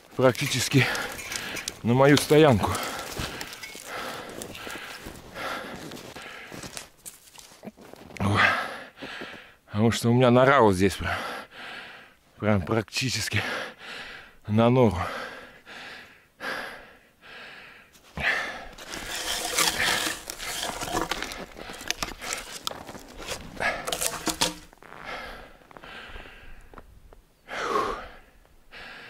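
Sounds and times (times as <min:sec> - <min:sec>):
branches rustling against clothing: 0:00.0 - 0:08.2, 0:18.0 - 0:25.8
footsteps crunching in snow: 0:00.0 - 0:08.2, 0:18.0 - 0:25.8.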